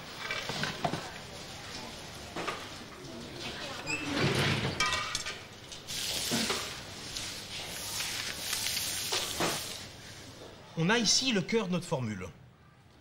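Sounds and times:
dried herbs rustling and scraping: 5.9s - 10.2s.

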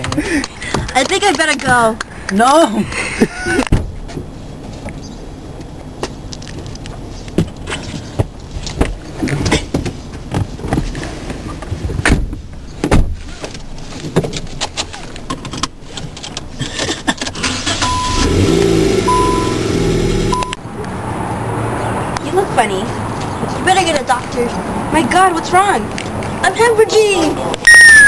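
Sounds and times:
car engine running: 17.3s - 20.6s
short electronic beep: 17.8s - 18.3s, 19.1s - 19.6s, 20.3s - 20.6s.

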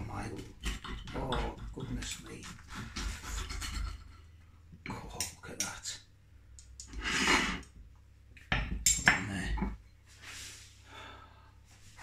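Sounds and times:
cutlery scraping ceramic plate: 0.6s - 4.3s.

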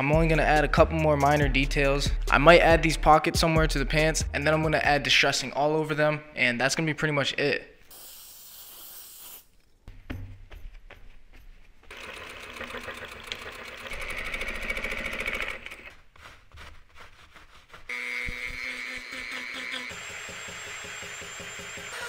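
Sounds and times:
rotary tool grinding: 11.8s - 22.0s.

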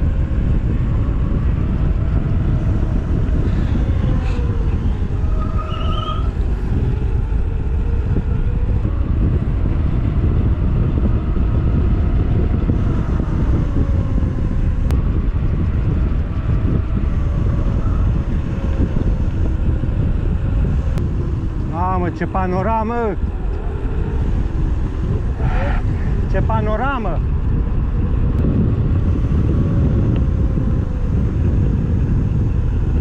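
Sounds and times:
road and wind noise: 0.0s - 33.0s
vehicle engine rumble: 0.0s - 33.0s.

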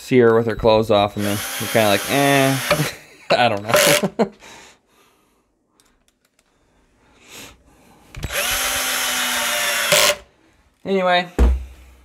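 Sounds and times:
cordless drill driving a screw: 1.2s - 2.9s, 8.2s - 10.2s.

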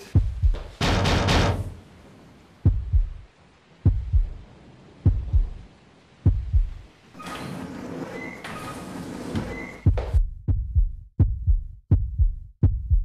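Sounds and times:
heartbeat thumps: 0.2s - 1.7s, 2.6s - 4.4s, 5.0s - 6.9s, 9.8s - 13.0s.

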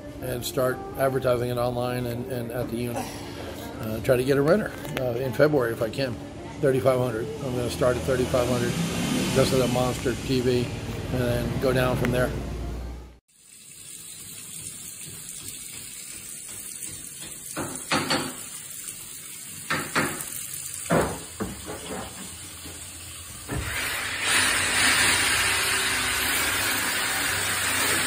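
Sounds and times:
tap water running into sink: 13.3s - 24.3s.

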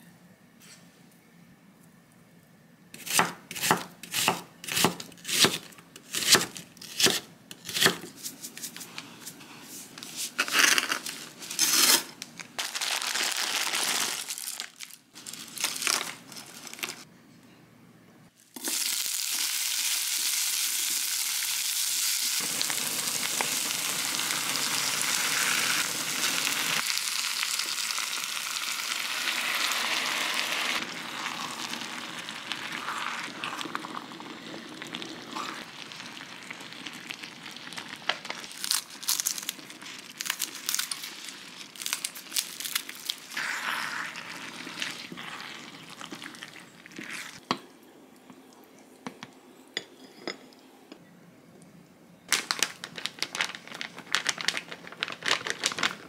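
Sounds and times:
rustling and handling: 8.1s - 17.1s, 52.3s - 56.0s
pan sizzling: 18.6s - 38.4s.

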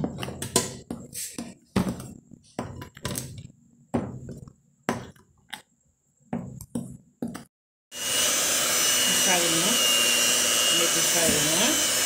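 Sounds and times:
electric hand mixer running: 7.9s - 12.0s.

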